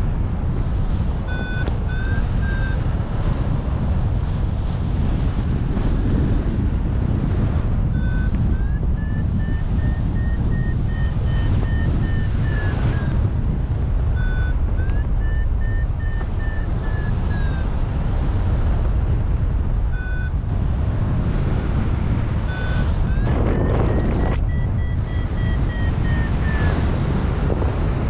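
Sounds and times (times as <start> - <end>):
wind rushing over microphone: 0.0 - 28.0
variometer quick beeps: 1.3 - 2.8, 7.8 - 13.3, 14.0 - 17.7, 19.9 - 20.4, 22.4 - 27.0.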